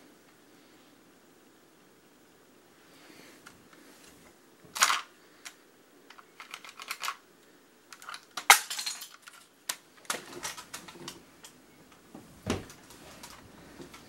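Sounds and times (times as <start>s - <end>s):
plastic toy clicks and clatter: 4.7s - 7.2s, 7.9s - 11.2s.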